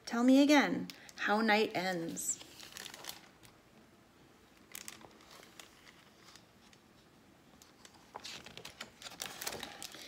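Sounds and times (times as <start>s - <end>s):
book pages rustling: 2.0s - 3.3s, 4.6s - 10.0s.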